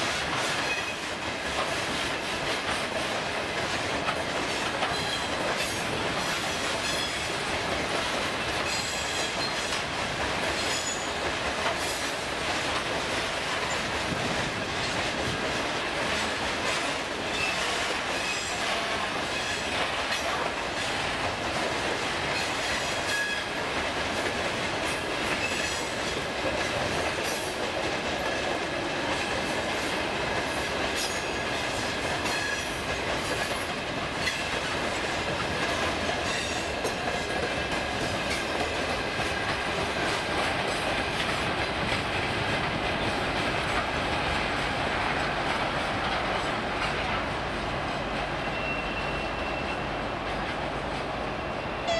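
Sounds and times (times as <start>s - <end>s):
high-pitched wheel squeal: 48.4s - 49.9s.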